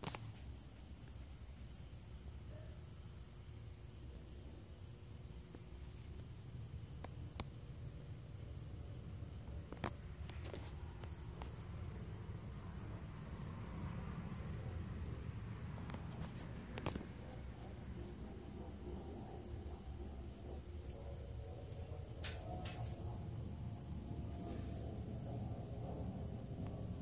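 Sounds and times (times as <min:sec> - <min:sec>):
crickets trilling: 0:00.0 - 0:27.0
sharp clicks and knocks: 0:22.2 - 0:23.1.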